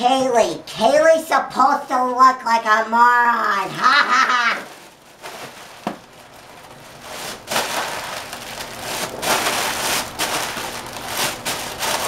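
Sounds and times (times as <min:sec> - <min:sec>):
foil balloon crinkling: 0:03.6 - 0:12.0.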